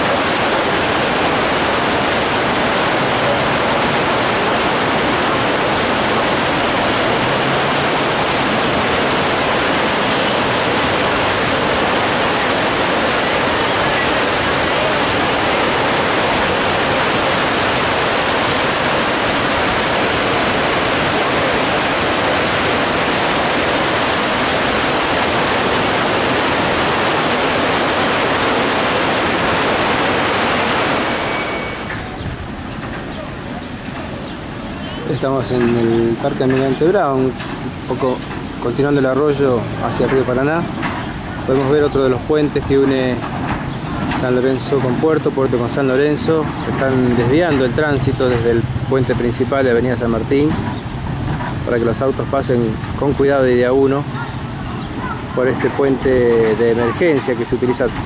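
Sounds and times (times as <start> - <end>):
water pouring from culvert: 0.0 - 32.2, 35.1 - 58.0
flooded creek rushing: 0.0 - 58.0.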